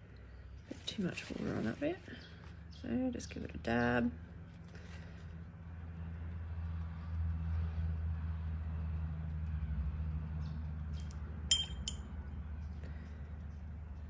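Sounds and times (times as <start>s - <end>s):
paintbrush clinking on jar: 11.5s - 12.1s.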